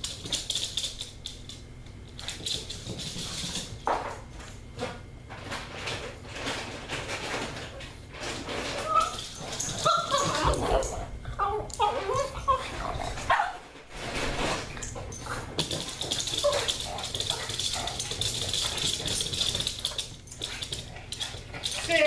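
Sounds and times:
dog whining and yipping: 0:08.8 - 0:13.6.

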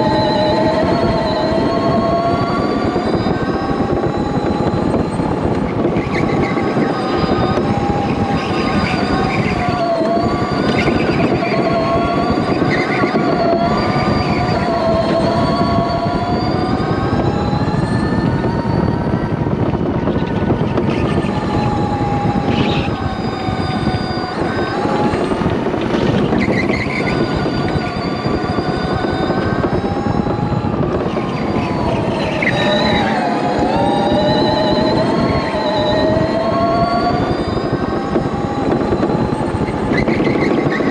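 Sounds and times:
electric motor whining: 0:00.0 - 0:40.9
rumble of tyres and chassis: 0:00.0 - 0:40.9.

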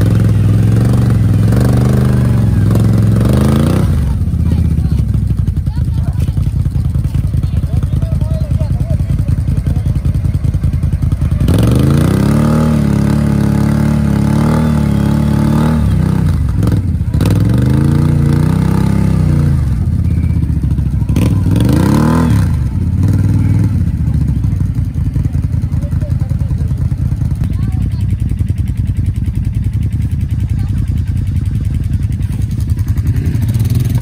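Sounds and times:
vehicle engine revving: 0:00.0 - 0:34.0.

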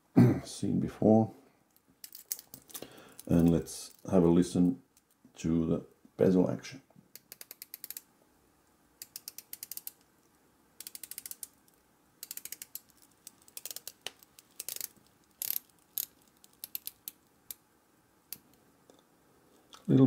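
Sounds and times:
watch bezel ratchet clicks: 0:07.2 - 0:08.0, 0:09.0 - 0:10.0, 0:10.8 - 0:11.6, 0:12.2 - 0:17.6.

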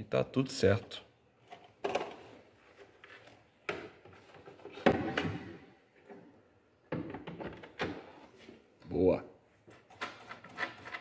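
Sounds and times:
hard plastic knocks and clicks: 0:06.9 - 0:08.1.

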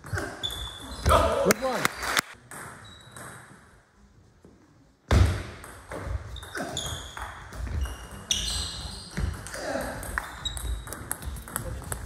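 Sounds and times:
shoes squeaking on floor: 0:00.0 - 0:01.3, 0:02.8 - 0:03.6, 0:06.0 - 0:12.0.

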